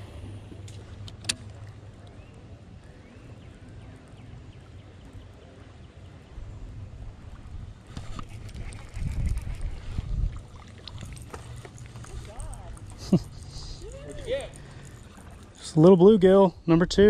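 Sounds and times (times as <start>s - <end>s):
boat rumble: 0.0s - 17.0s
wind rumble: 6.3s - 11.3s.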